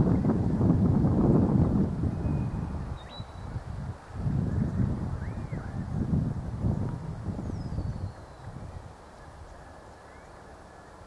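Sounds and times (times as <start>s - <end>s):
wind buffeting microphone: 0.0s - 9.8s
faint bird chirps: 2.2s - 3.6s, 9.2s - 11.0s.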